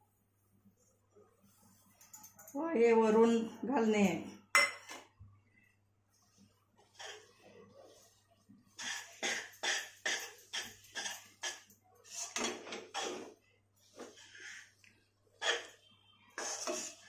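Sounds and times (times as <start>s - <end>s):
spatula scraping a pan: 6.8s - 7.4s, 8.7s - 14.8s, 15.4s - 17.0s.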